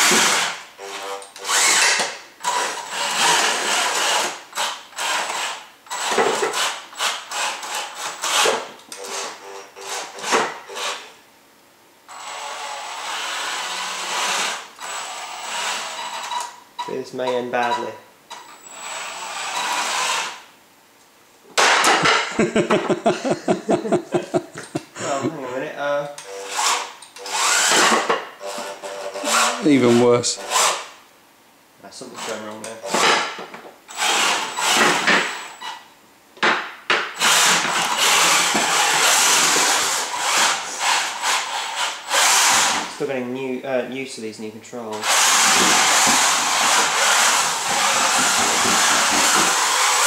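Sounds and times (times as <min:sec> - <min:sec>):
electric motors whirring: 0:00.0 - 0:11.0, 0:12.1 - 0:16.6, 0:18.3 - 0:20.4, 0:26.2 - 0:30.9, 0:33.9 - 0:35.7, 0:37.2 - 0:42.9, 0:45.0 - 0:50.0
wooden stool crashing over: 0:21.6 - 0:22.3.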